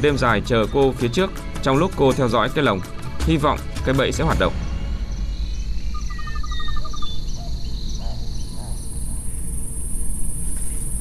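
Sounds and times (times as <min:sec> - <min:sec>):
insects chirring: 0:04.4 - 0:11.0
high-pitched insect buzz: 0:05.5 - 0:11.0
brief whistled calls: 0:05.9 - 0:11.0
fast pulsing call: 0:06.0 - 0:10.3.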